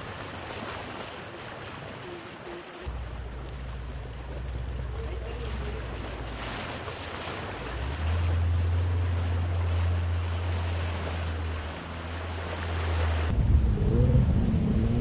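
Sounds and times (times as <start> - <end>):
floodwater rushing and splashing: 0.0 - 15.0
steady low rumble: 7.7 - 15.0.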